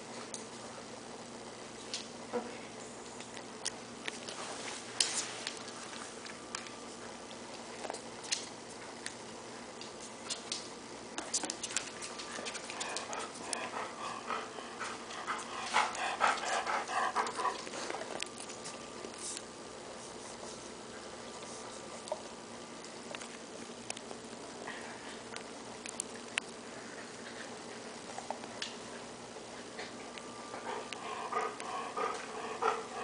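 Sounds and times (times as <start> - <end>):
dog panting: 12.0 - 18.1, 29.6 - 33.0.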